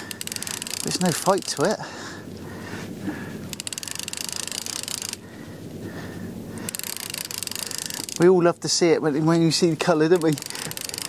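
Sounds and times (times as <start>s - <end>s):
fishing reel clicking: 0.0s - 1.8s, 3.5s - 5.2s, 6.6s - 8.4s, 9.8s - 11.0s.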